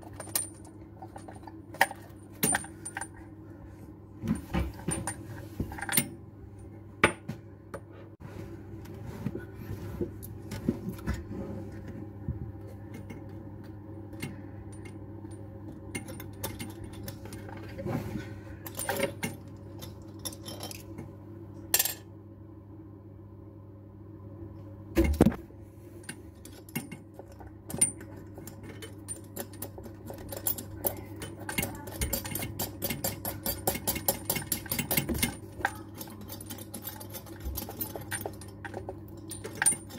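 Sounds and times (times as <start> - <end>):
small metal parts clinking: 18.6 - 20.9, 26.4 - 39.9.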